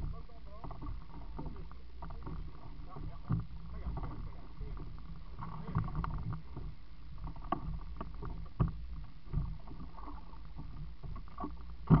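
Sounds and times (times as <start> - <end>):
water splashing: 0.0 - 12.0
knocks against boat hull: 11.4 - 12.0.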